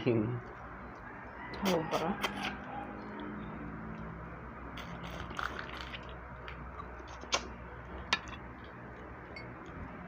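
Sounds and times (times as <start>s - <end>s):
wet mouth sounds: 4.8s - 7.6s.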